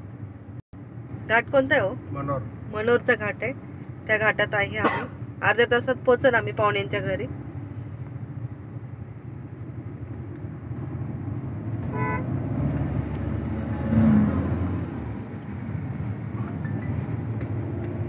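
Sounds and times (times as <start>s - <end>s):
car engine and road rumble: 0.0s - 18.0s
vehicle horn toot: 11.8s - 12.4s.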